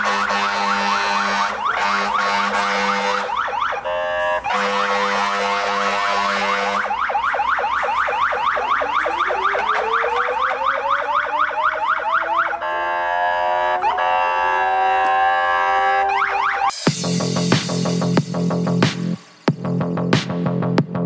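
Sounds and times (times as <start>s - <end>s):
steady horn-like tone: 0.0s - 6.9s, 12.6s - 16.3s
fire engine siren yelp: 0.0s - 16.9s
rising siren wail: 0.0s - 16.9s.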